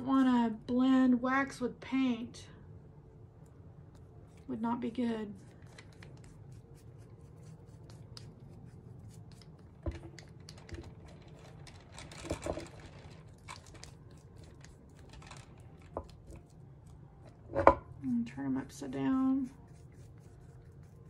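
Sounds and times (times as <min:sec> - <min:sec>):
scratchy brush strokes: 0:05.2 - 0:09.6, 0:18.0 - 0:21.0.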